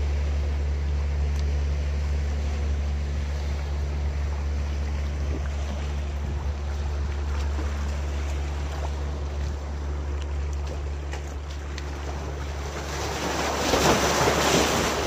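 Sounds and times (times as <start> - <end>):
boat engine drone: 0.0 - 15.0
waves washing against rocks: 10.8 - 15.0.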